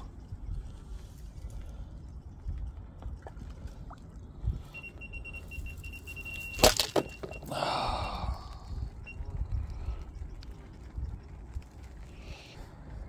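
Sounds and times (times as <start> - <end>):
electronic bite alarm beeping: 4.6 - 10.0.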